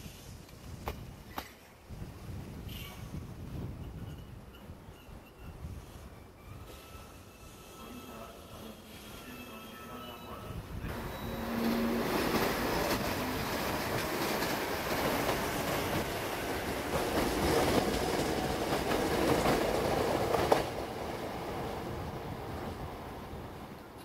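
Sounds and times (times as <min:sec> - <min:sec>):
electric train passing: 0:03.9 - 0:24.0
wheels rumbling on rails: 0:10.8 - 0:23.8.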